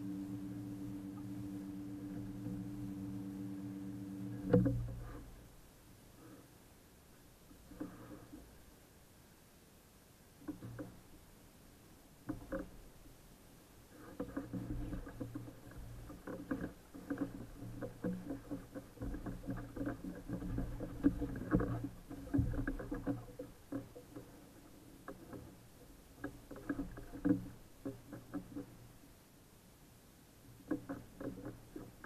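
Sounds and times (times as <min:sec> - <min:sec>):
knocks and clatter in boat: 0:00.0 - 0:05.6, 0:07.5 - 0:08.6, 0:10.4 - 0:11.3, 0:12.2 - 0:13.2, 0:13.8 - 0:29.1, 0:30.5 - 0:32.0
water slapping boat hull: 0:00.0 - 0:06.3, 0:10.4 - 0:11.4, 0:12.1 - 0:29.2, 0:30.5 - 0:32.0.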